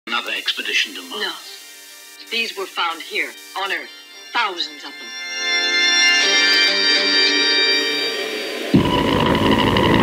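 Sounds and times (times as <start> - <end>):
electronic chord: 0.5 - 10.0
steady electronic tones: 1.0 - 10.0
noisy drone with deep rumble: 8.3 - 10.0.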